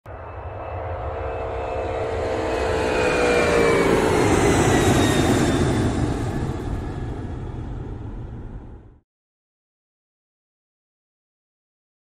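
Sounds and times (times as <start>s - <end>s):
whining tones sliding down: 0.1s - 7.2s
jet engine roar: 0.1s - 9.0s.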